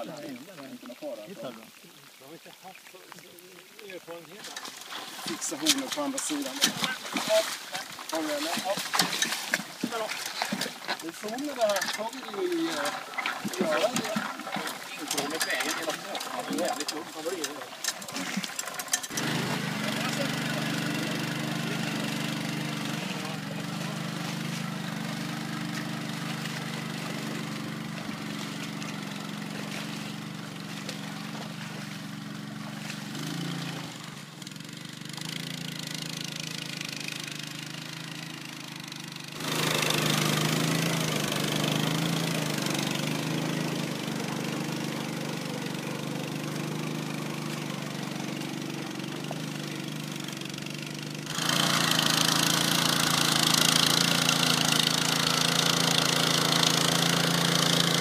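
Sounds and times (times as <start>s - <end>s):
small engine running under load: 9.8s - 58.0s.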